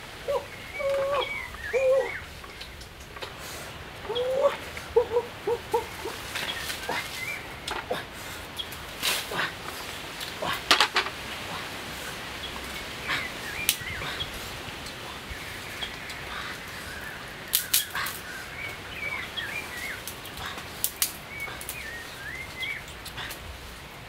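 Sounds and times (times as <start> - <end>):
wavering high-pitched animal calls: 0.2 - 2.4.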